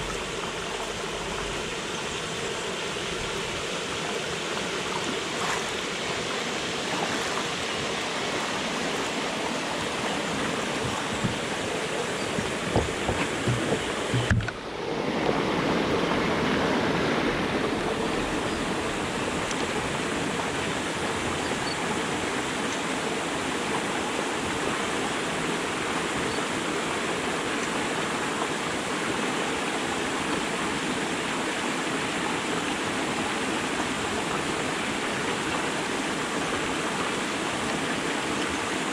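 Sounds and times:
water rushing through sluice: 0.0 - 38.9
low knocks: 10.8 - 14.6.

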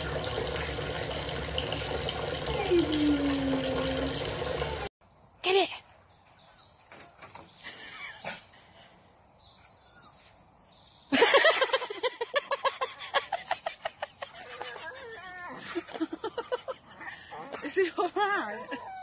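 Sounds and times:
faint bird chirps: 5.6 - 11.1.

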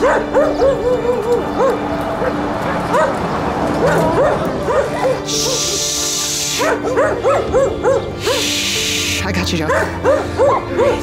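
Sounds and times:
dog whimpering and yipping: 0.0 - 3.1, 3.8 - 5.8, 6.6 - 8.4, 9.7 - 11.0
background music: 0.0 - 11.0.

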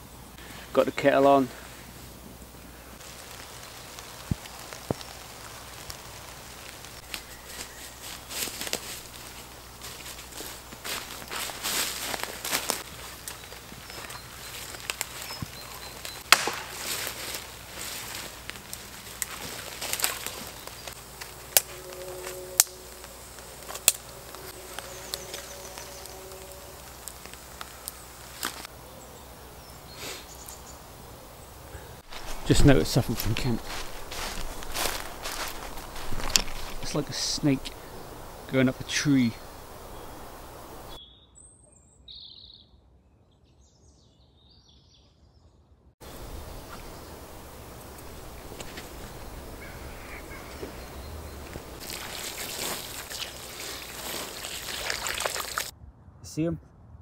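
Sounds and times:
campfire crackling: 0.0 - 41.0, 46.0 - 55.7
faint steady hum: 0.0 - 41.0, 46.0 - 55.7
steady outdoor hiss: 0.0 - 41.0, 46.0 - 56.6
small birds chirping: 2.6 - 16.4, 17.0 - 55.7
loud sharp pops: 16.2 - 17.2.

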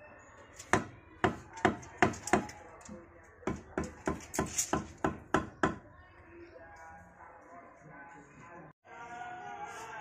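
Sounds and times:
hammer knocking on blocks: 0.6 - 2.6, 3.4 - 5.8.

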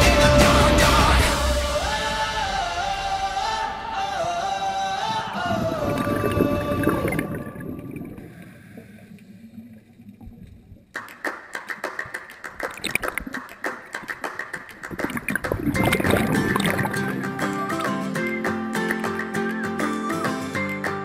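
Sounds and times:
soundtrack music: 0.0 - 7.3
low muffled underwater rumble: 5.4 - 10.9.

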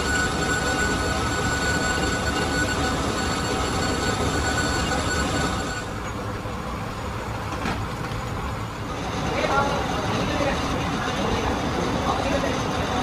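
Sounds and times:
boring tool whining: 0.0 - 6.3
lathe rumble: 0.0 - 13.0.

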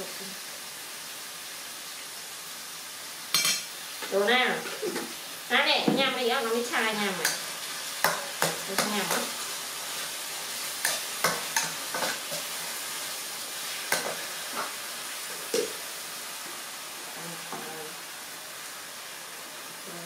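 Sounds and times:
beef sizzling in a wok: 0.0 - 20.0
metal spatula scraping a pan: 10.8 - 12.9.

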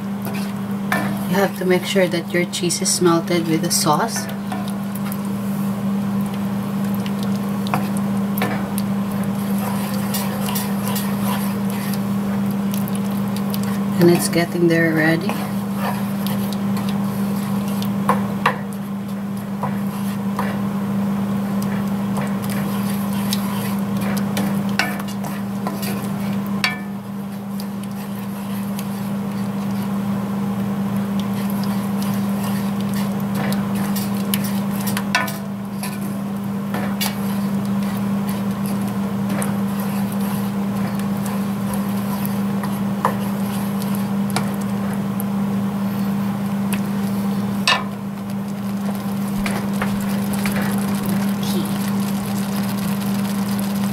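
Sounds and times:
steady low hum: 0.0 - 53.9
spatula scraping through sauce: 9.3 - 12.1, 15.1 - 18.0, 19.4 - 20.7, 21.6 - 26.4, 27.3 - 30.0, 31.2 - 35.1, 35.7 - 44.6.

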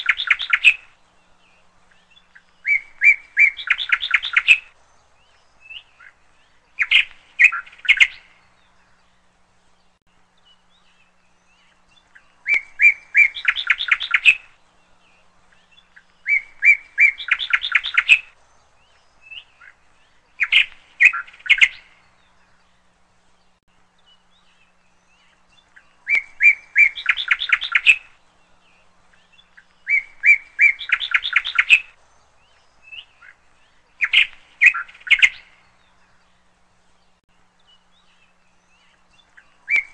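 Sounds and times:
songbird chirping: 0.0 - 39.9.

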